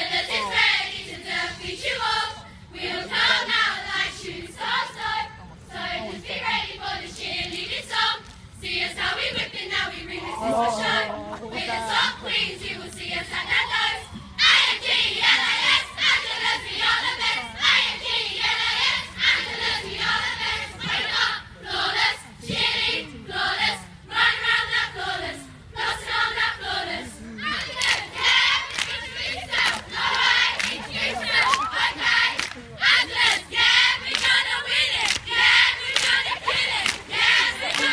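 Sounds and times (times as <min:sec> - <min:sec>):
cheerleaders shouting in unison: 0:27.4 - 0:33.7.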